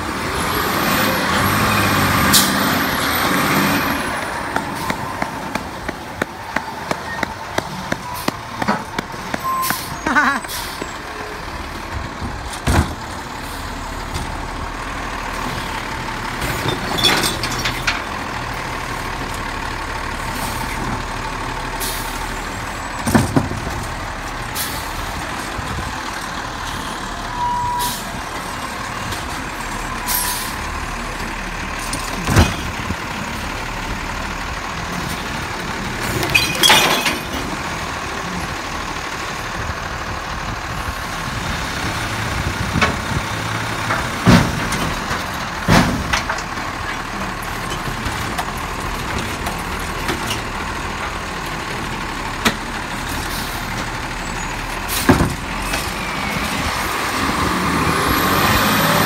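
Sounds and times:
garbage truck engine running: 0.0s - 59.0s
cart knocking and clattering: 42.6s - 51.2s.

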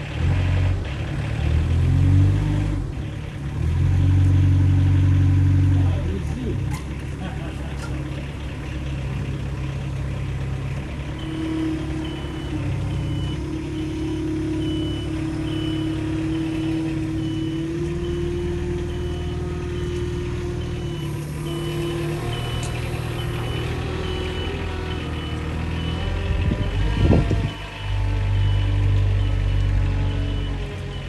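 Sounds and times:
engine whine: 0.0s - 31.0s
forklift engine hum: 0.0s - 31.0s
reversing alarm beeping: 11.1s - 31.0s.

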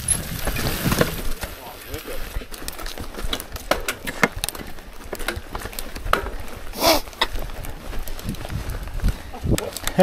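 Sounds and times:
mountain bike clattering: 0.0s - 10.0s
tyres rumbling on dirt: 0.0s - 10.0s.

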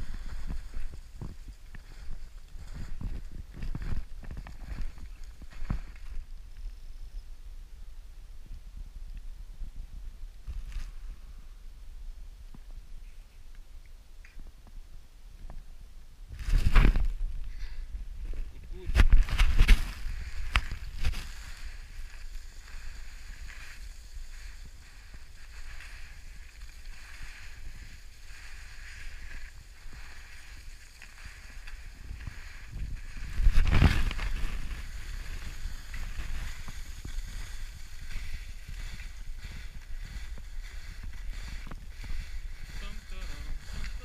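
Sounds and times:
wind buffeting microphone: 16.2s - 44.0s.

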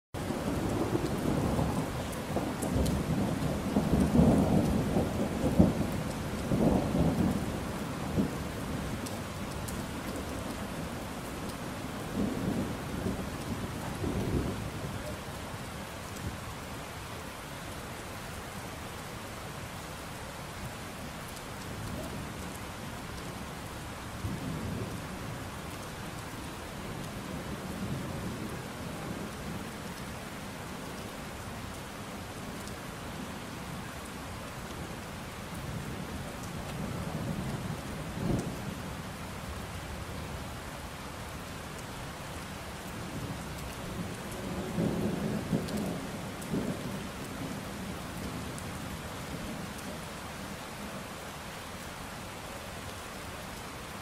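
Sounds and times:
steady rain: 0.2s - 54.0s
rolling thunder: 43.1s - 48.4s.

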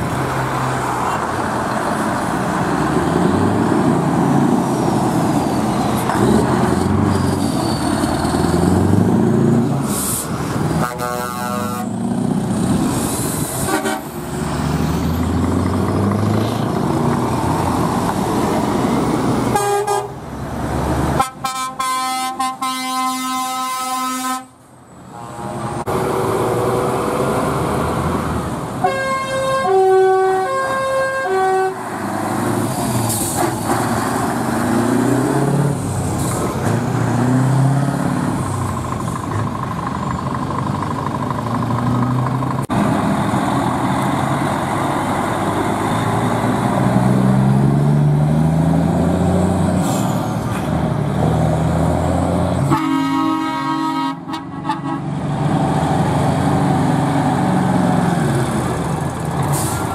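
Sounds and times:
diesel truck engines pulling away: 0.0s - 59.9s
air horn blasts: 10.8s - 11.9s, 13.7s - 14.1s, 19.5s - 20.2s, 21.2s - 25.8s, 28.8s - 31.8s, 52.6s - 55.1s.

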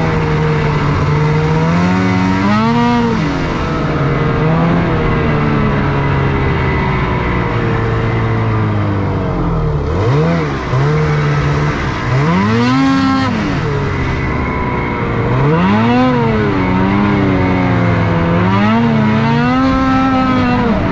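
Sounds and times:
snowmobile engine revving: 0.0s - 20.9s.

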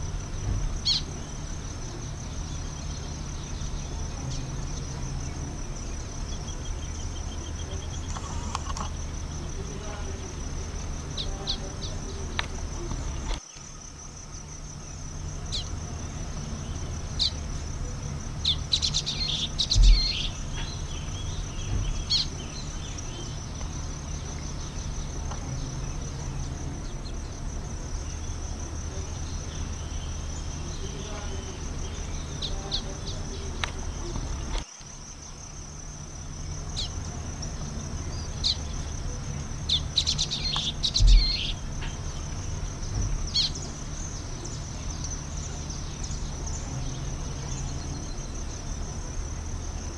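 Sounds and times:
dull low thump: 0.0s - 1.2s, 19.6s - 25.6s, 40.5s - 45.1s
high-pitched insect trill: 0.0s - 49.9s
twittering bird calls: 0.7s - 13.8s, 14.8s - 34.7s, 36.3s - 48.8s.

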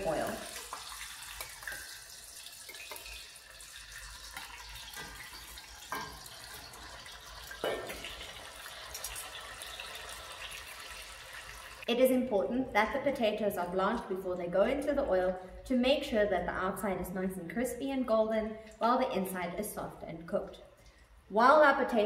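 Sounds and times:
potatoes frying in oil: 0.0s - 11.9s.

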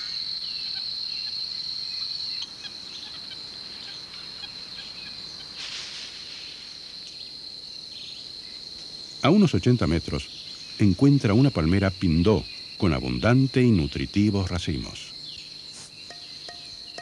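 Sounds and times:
faint chirps: 0.0s - 17.0s
insect chorus buzzing: 0.0s - 17.0s.

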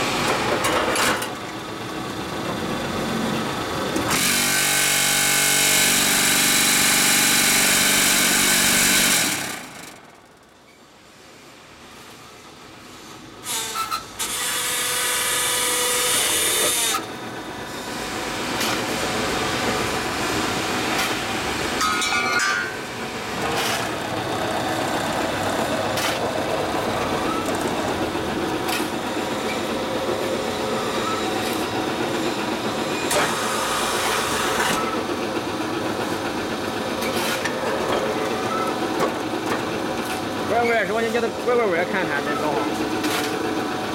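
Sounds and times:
electric motors running: 1.7s - 10.4s, 14.2s - 21.8s, 22.8s - 36.8s.

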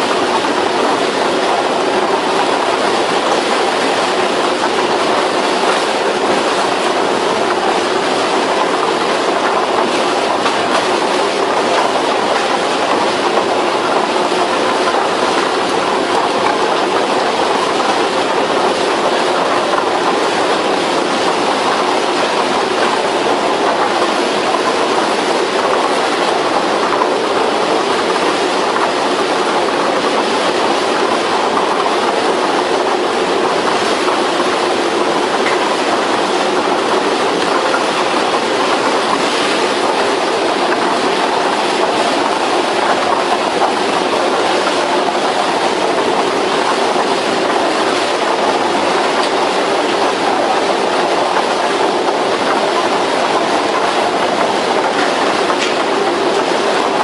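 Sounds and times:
logs knocking and scraping: 51.5s - 57.0s.

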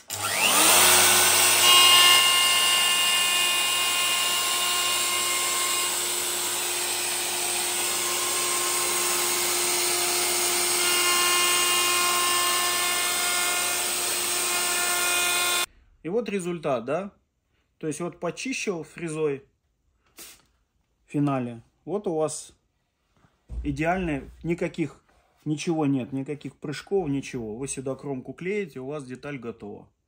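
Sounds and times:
router whining: 0.0s - 15.7s.

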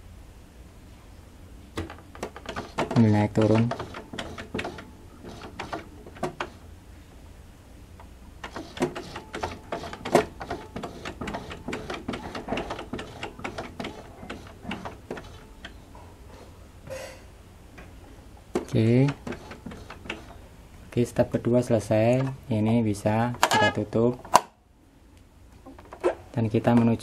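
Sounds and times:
sewing machine needle bar clicking: 1.8s - 6.6s.

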